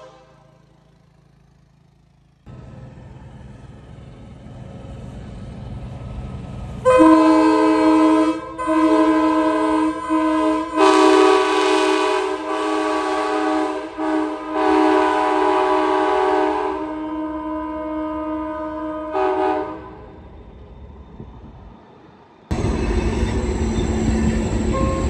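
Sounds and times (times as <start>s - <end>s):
train horn blasts: 0.0s - 0.7s, 6.8s - 20.1s, 24.6s - 25.0s.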